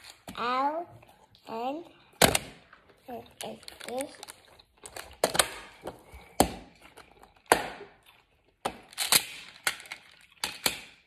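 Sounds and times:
hard toy pieces clacking: 8.6 - 11.0.

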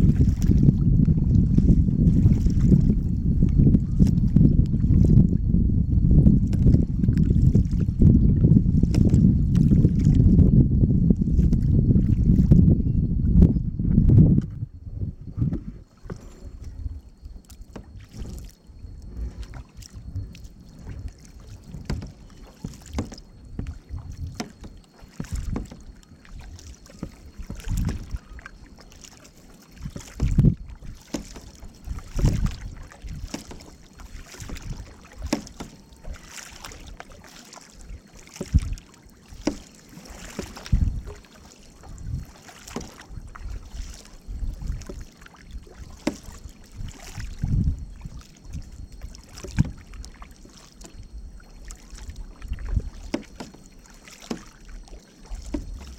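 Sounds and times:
canoe paddles splashing: 0.0 - 5.4, 6.0 - 12.6, 14.9 - 55.9
low paddle thud: 7.9 - 10.2, 13.4 - 18.5, 19.1 - 25.8, 55.4 - 55.9.

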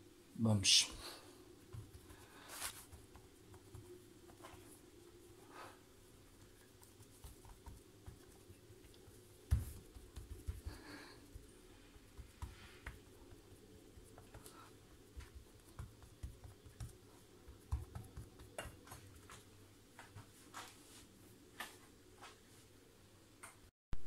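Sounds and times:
hands pressing pastry dough: 1.6 - 4.9, 6.3 - 20.3.

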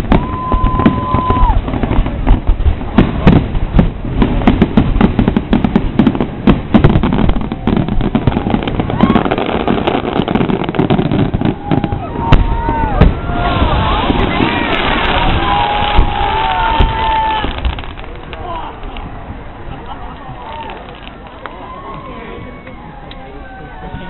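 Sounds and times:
firework whistle: 0.0 - 1.8
fireworks booming and crackling: 0.0 - 24.0.

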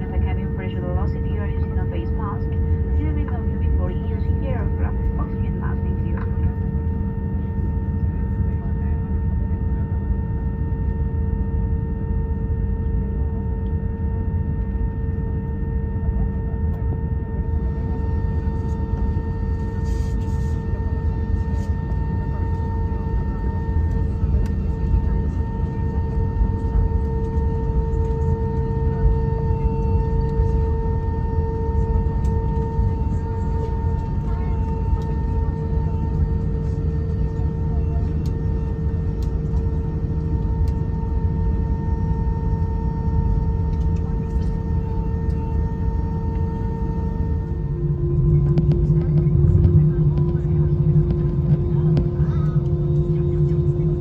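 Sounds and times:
airliner cabin engine rumble: 0.0 - 54.0
high whine: 13.6 - 54.0.

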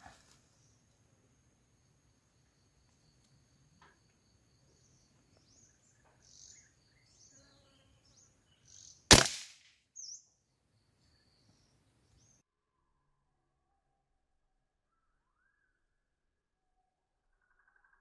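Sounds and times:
small birds chirping: 2.4 - 9.1, 10.0 - 12.4
rifle shot: 9.1 - 9.7.

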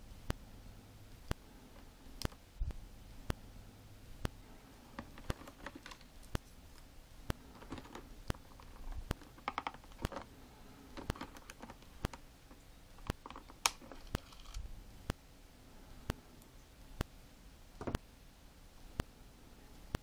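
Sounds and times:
plastic packaging clicks and crinkles: 5.0 - 10.3, 11.0 - 14.6.

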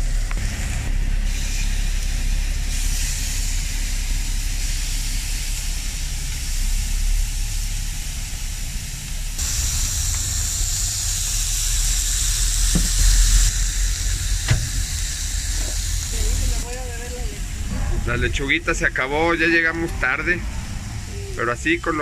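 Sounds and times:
burger patties sizzling on griddle: 0.0 - 17.2.

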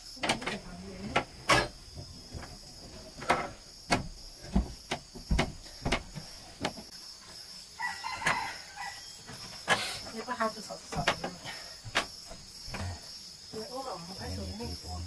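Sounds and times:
high insect drone: 0.0 - 15.0
footsteps on wooden floorboards: 1.9 - 6.9
rooster crowing: 7.7 - 9.3.

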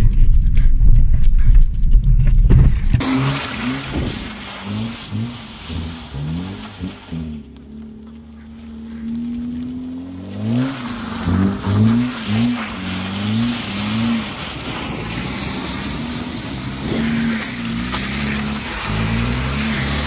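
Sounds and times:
car engine revving: 2.9 - 20.0
steady rushing noise: 10.8 - 20.0.

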